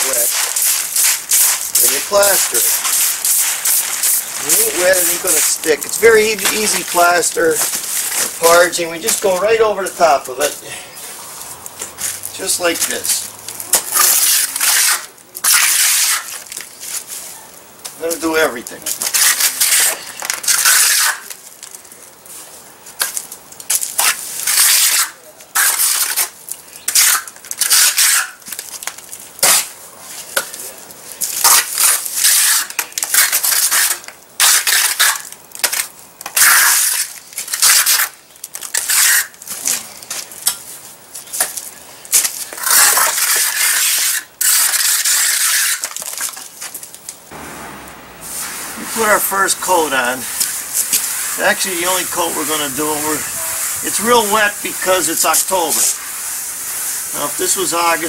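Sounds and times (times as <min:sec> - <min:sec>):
trowel scraping cement on wall: 0:14.0 - 0:16.4, 0:19.1 - 0:21.3, 0:24.0 - 0:26.3, 0:26.9 - 0:28.4, 0:31.4 - 0:35.2, 0:36.4 - 0:39.3, 0:42.6 - 0:46.0.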